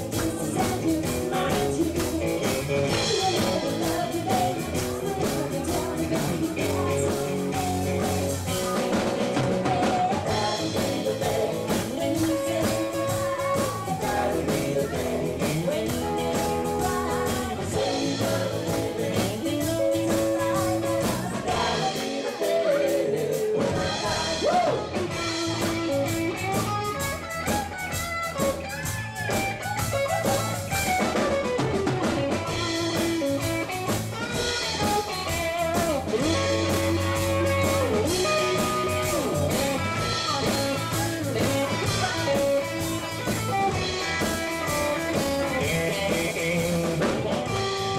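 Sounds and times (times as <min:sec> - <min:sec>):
woman singing: 0:00.0 - 0:25.0, 0:34.5 - 0:43.4
drums: 0:00.0 - 0:47.9
electric guitar: 0:00.0 - 0:47.9.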